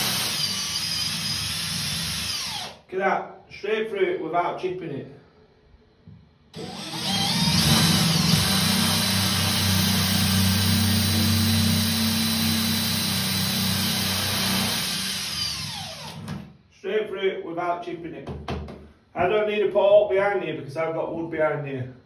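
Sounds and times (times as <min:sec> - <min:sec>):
cordless drill boring through tile: 0:00.0 - 0:02.8, 0:06.6 - 0:16.5.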